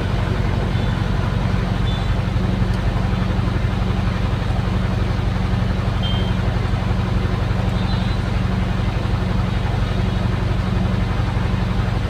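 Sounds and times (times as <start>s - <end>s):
diesel engine humming: 0.0s - 12.0s.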